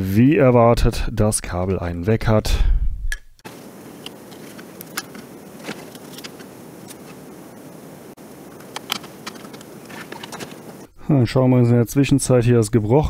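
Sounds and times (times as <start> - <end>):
steady hiss: 3.4 - 11.2
plastic parts clicking and tapping: 8.5 - 10.6.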